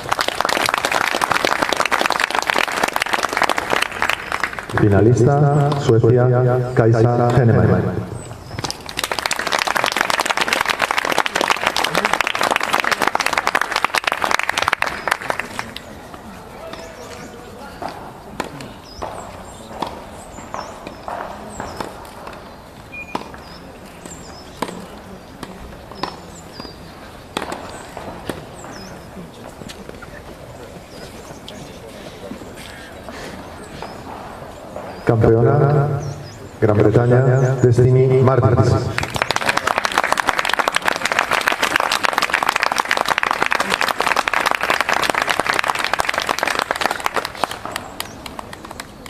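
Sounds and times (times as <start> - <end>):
crowd applauding: 0.0 - 5.2, 8.7 - 16.0, 38.8 - 49.0
open-air background noise: 0.0 - 49.0.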